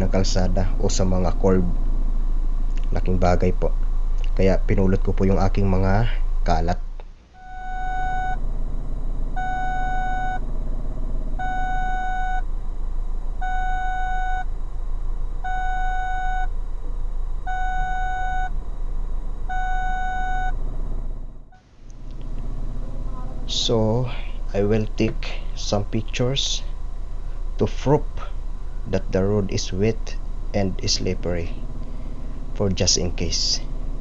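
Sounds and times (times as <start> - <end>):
low steady rumble: 0.0 - 34.0
electronic warning beeps: 7.4 - 8.4, 9.3 - 10.5, 11.4 - 12.5, 13.4 - 14.5, 15.4 - 16.6, 17.5 - 18.6, 19.5 - 20.6.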